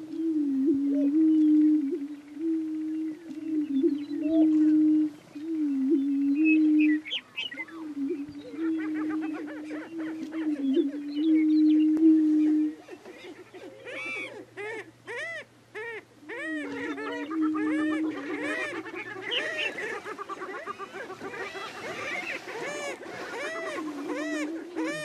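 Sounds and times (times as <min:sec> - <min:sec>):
birds cackling and whooping: 0:00.0 - 0:25.0.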